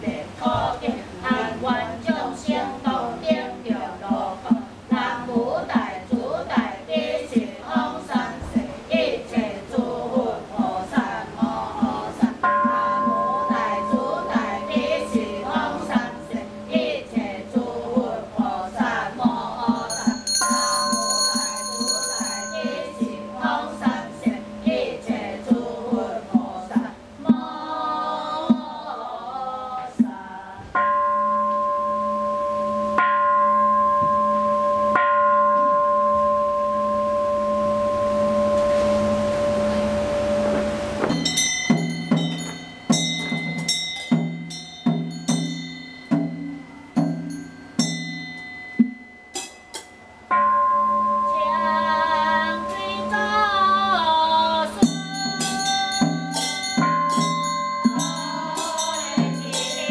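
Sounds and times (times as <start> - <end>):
women chanting in unison: 0.0 - 30.8, 51.3 - 57.1, 57.8 - 59.9
wooden fish and bells beat: 1.3 - 59.9
bowl bell ringing: 12.4 - 18.0, 19.5 - 25.6, 30.8 - 59.9.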